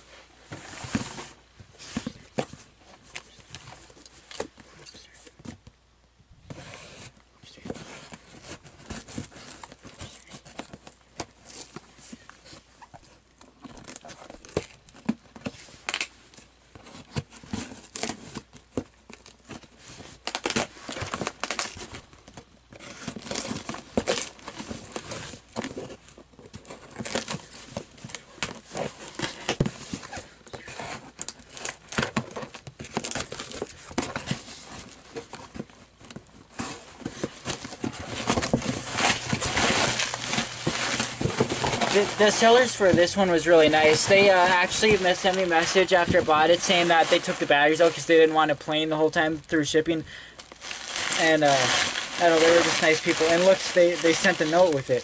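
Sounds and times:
cardboard and paper crinkling: 0.4s - 5.6s, 6.5s - 55.0s
tape tearing: 16.8s - 49.3s, 50.4s - 55.0s.

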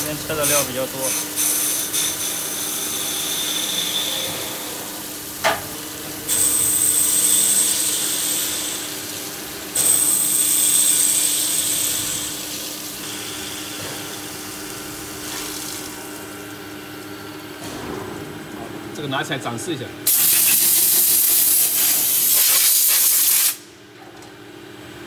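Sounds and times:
coolant flowing: 0.0s - 19.0s.

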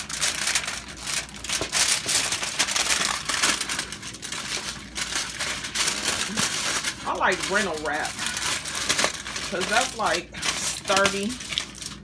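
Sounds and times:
aluminum foil crinkling: 0.0s - 12.0s.

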